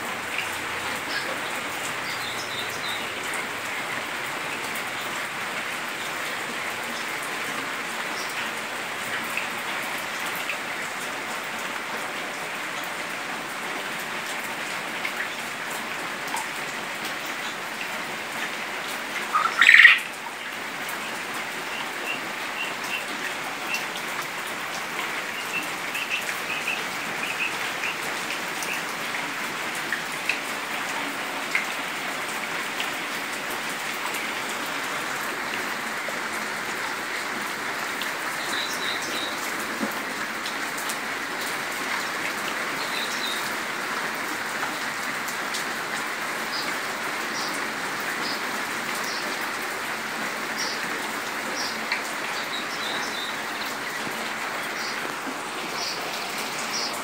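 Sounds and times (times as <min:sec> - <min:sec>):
steady rain hiss: 0:00.0 - 0:57.0
quail calling and chirping: 0:19.3 - 0:20.1.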